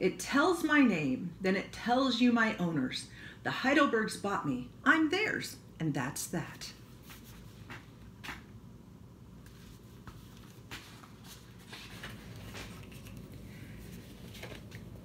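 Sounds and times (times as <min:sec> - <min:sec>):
low steady hum: 0:00.0 - 0:15.0
page turning rustle: 0:09.4 - 0:15.0.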